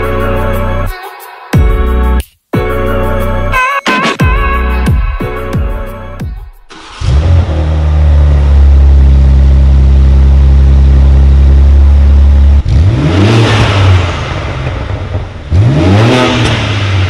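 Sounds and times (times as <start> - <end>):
car exhaust droning and revving: 6.7 - 17.0.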